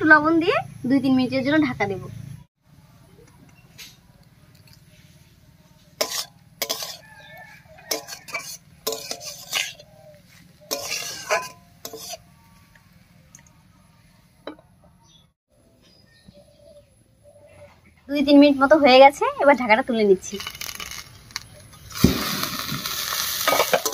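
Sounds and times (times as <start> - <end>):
spatula scraping metal pan: 5.9 - 12.4.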